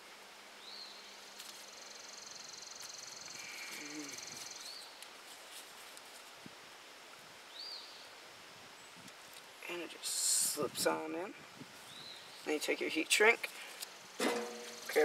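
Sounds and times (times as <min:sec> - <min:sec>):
insect buzzing: 0:01.7 - 0:04.7, 0:13.6 - 0:15.0.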